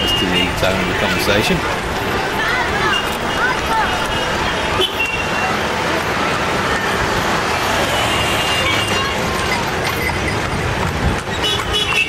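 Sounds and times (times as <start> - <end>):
street traffic: 0.0 - 12.0
tram wheels rumbling on rails: 0.0 - 12.0.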